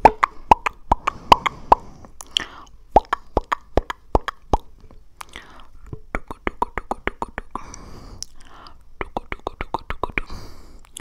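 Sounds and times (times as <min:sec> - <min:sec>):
tongue clicks and mouth pops: 0:00.0 - 0:11.0
breathing: 0:01.0 - 0:02.8, 0:05.2 - 0:05.8, 0:07.6 - 0:08.9, 0:10.2 - 0:11.0.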